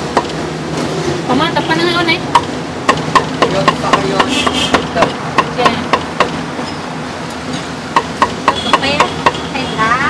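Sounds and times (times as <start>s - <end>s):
meat cleaver chopping on wooden block: 2.3s - 6.4s.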